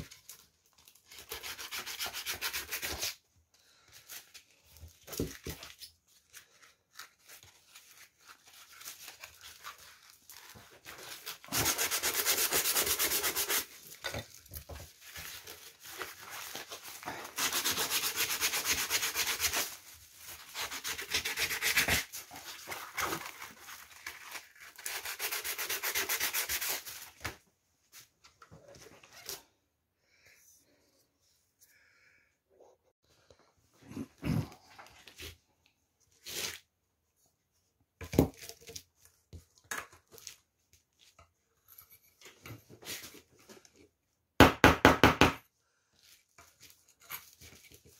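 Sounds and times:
sandpaper rubbing metal can: 0:11.4 - 0:13.7, 0:17.3 - 0:19.8, 0:20.4 - 0:22.1, 0:24.8 - 0:26.9.

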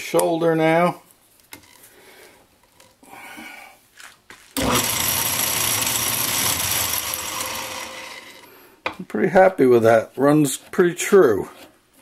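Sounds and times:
metal lathe running: 0:04.6 - 0:08.5.

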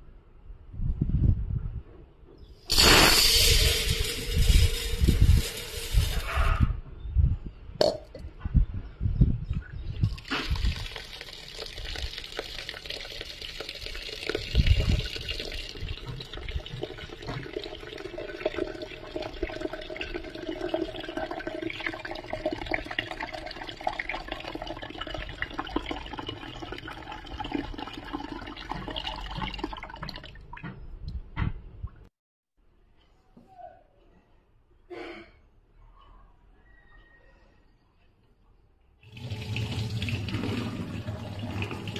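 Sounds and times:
water pouring into pot: 0:02.7 - 0:06.3, 0:10.1 - 0:30.3, 0:39.0 - 0:41.9.

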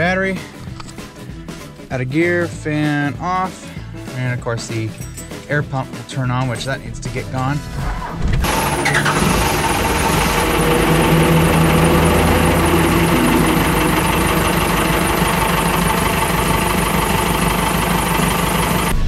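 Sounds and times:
diesel engine starting and idling: 0:07.6 - 0:19.0.

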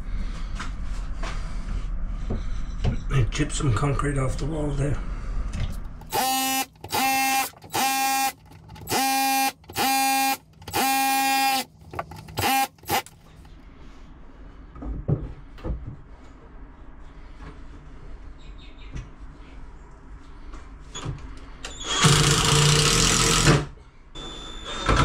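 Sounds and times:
hammer drill chipping concrete: 0:06.1 - 0:11.7, 0:12.3 - 0:13.1, 0:21.9 - 0:23.5.

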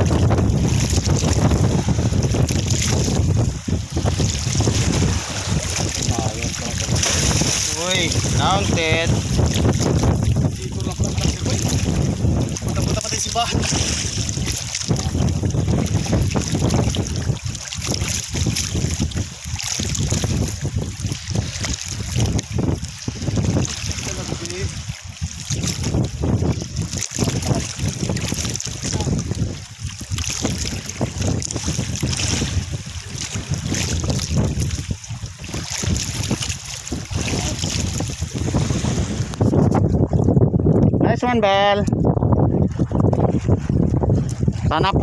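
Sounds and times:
waves washing around boat: 0:00.0 - 0:45.0
wind buffeting microphone: 0:00.0 - 0:45.0.

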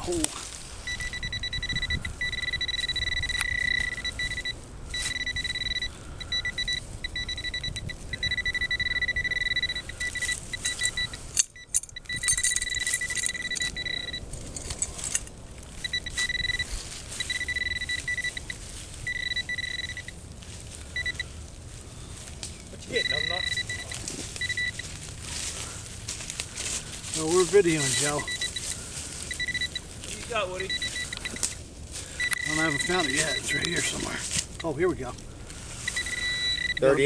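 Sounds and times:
metal detector high tone: 0:00.8 - 0:20.2, 0:20.9 - 0:21.4, 0:22.7 - 0:25.5, 0:27.1 - 0:35.0, 0:35.8 - 0:37.0
tools scraping in soil and leaves: 0:09.8 - 0:19.1, 0:20.4 - 0:36.4.

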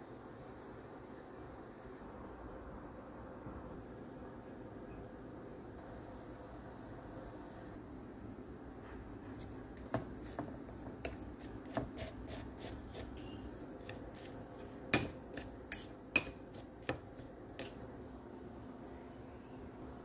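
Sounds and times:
spoon stirring flour in bowl: 0:09.3 - 0:17.8
spoon clinking against bowl: 0:13.8 - 0:17.8.

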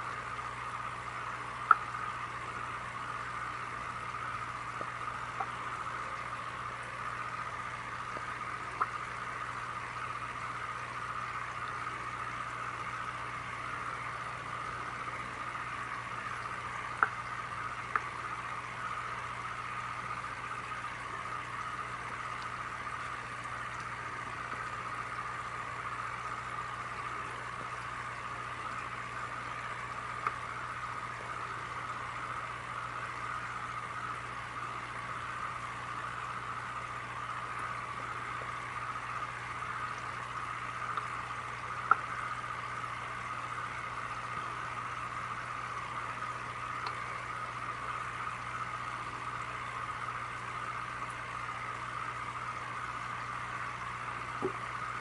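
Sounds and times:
aquarium pump hum: 0:00.0 - 0:55.0
aquarium water bubbling: 0:00.0 - 0:55.0.

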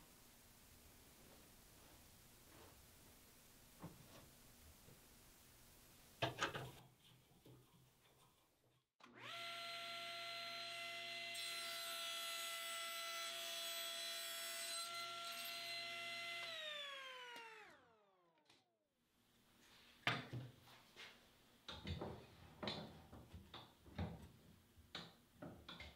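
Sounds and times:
table saw whining: 0:09.0 - 0:18.4
saw blade cutting wood: 0:10.2 - 0:17.8.

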